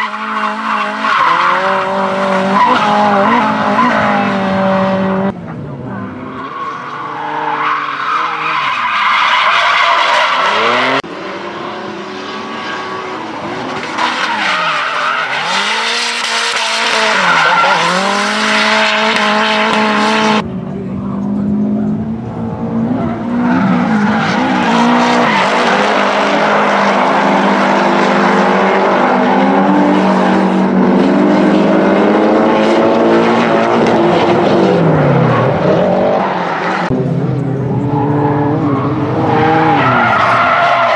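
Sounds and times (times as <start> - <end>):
tire squeal: 0.0 - 4.4, 6.0 - 11.0, 12.4 - 19.3, 22.9 - 30.8, 37.6 - 40.9
car engines revving: 0.0 - 40.9.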